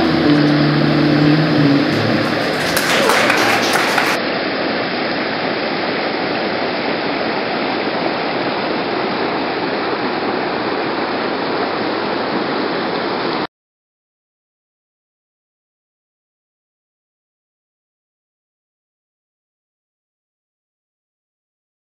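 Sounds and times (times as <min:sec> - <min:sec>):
river water rushing: 0:00.0 - 0:13.4.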